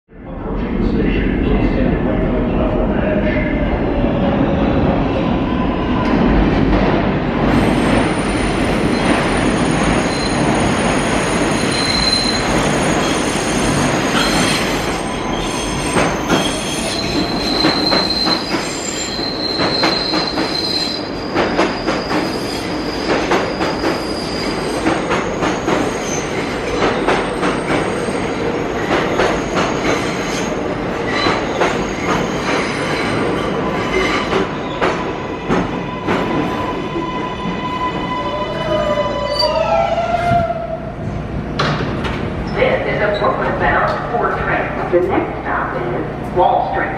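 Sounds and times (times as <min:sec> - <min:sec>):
train wheels squealing on rails: 0:07.5 - 0:40.8.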